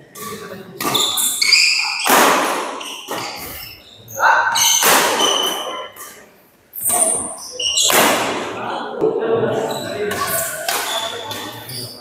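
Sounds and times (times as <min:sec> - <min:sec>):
shoes squeaking on court floor: 0:00.2 - 0:08.2, 0:09.6 - 0:12.0
racket striking shuttlecock: 0:02.0 - 0:03.5, 0:04.6 - 0:05.6, 0:10.1 - 0:11.6.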